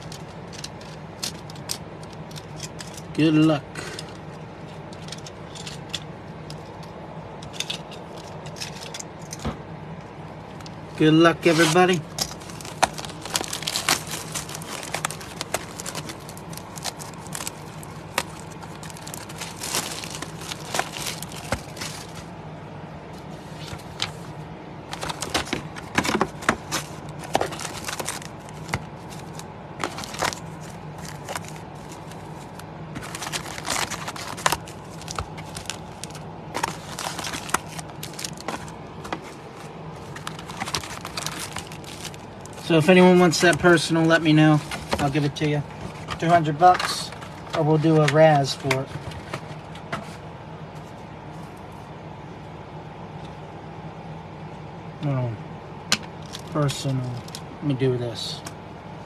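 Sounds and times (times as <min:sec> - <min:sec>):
cardboard and foil packs rustling: 0:11.0 - 0:22.4, 0:23.2 - 0:50.3, 0:56.2 - 0:57.4
plastic shrink wrap crinkling: 0:11.4 - 0:22.3, 0:24.9 - 0:45.3, 0:56.2 - 0:57.4.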